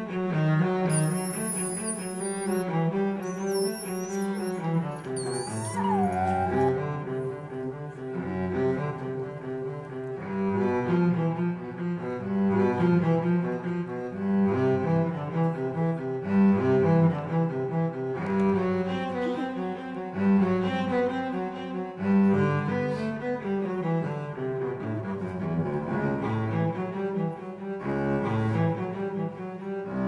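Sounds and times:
slow cello music: 0:00.0 - 0:30.0
brief falling squeak: 0:00.9 - 0:06.9.

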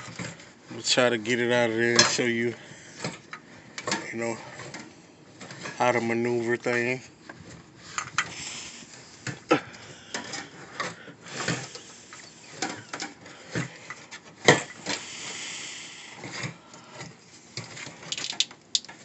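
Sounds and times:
clicks and knocks of metal parts: 0:01.9 - 0:02.3, 0:16.3 - 0:19.0.

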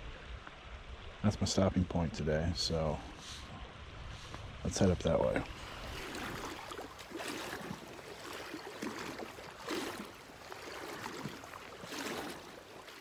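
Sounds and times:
creek running water: 0:00.0 - 0:13.0
water splashing around wading legs: 0:05.4 - 0:13.0.

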